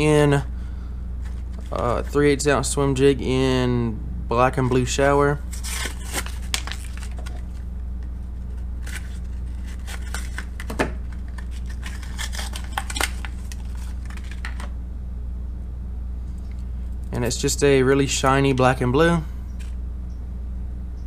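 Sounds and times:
steady low hum: 0:00.0 - 0:21.0
packaging tearing: 0:05.5 - 0:07.6, 0:08.8 - 0:14.7
plastic crinkling: 0:05.5 - 0:07.7, 0:08.4 - 0:14.7.

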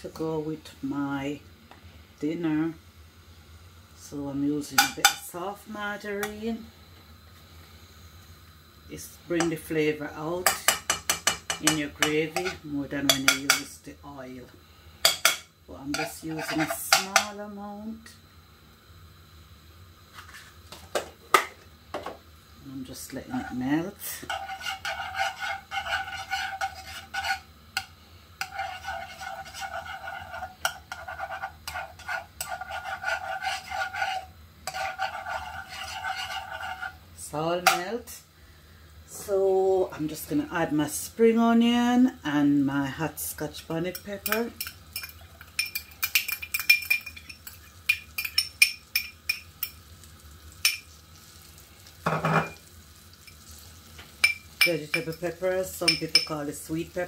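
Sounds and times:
faint sizzle: 0:00.0 - 0:57.0
metal spoon scraping frying pan: 0:10.4 - 0:13.7, 0:15.0 - 0:17.3, 0:23.3 - 0:37.0, 0:43.9 - 0:49.8
metal spoon clinking on glass bowl: 0:44.2 - 0:49.8.

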